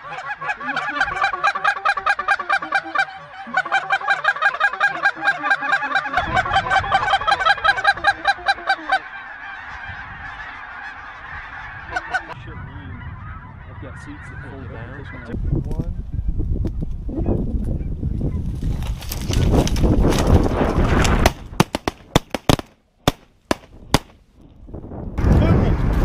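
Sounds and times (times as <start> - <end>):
geese honking: 0.0 - 15.4.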